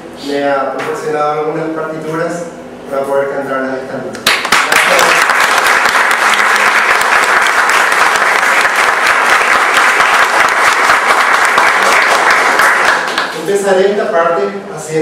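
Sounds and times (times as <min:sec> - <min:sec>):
audience applauding: 0:04.2 - 0:13.5.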